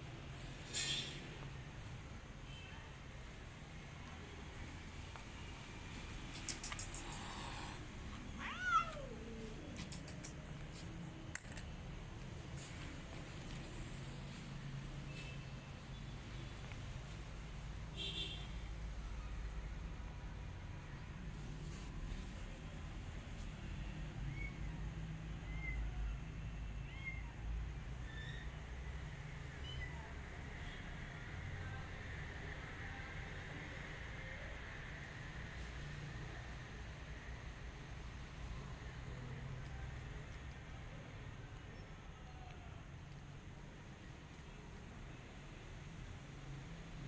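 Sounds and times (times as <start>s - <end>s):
faint clicks: 6.3s - 7.8s
kitten mewing: 6.5s - 10.5s
cat meowing: 7.4s - 9.8s.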